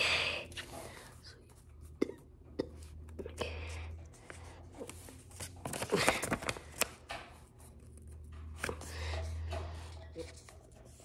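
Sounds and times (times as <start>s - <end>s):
paper rustling and crinkling: 4.2s - 11.0s.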